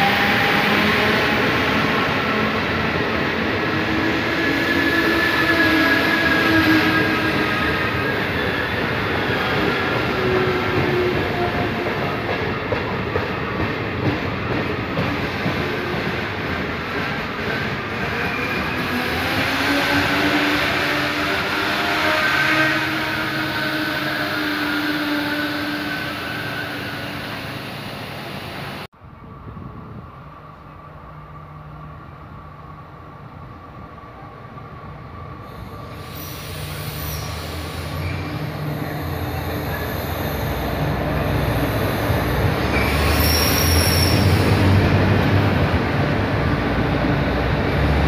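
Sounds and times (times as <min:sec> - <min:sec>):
train wheels on rails: 0:00.0 - 0:28.9
high-pitched train whines: 0:00.0 - 0:48.0.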